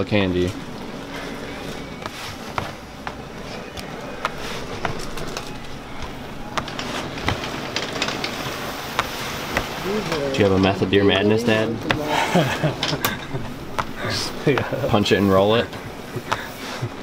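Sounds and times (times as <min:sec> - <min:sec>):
electric fans whirring: 0:00.0 - 0:17.0.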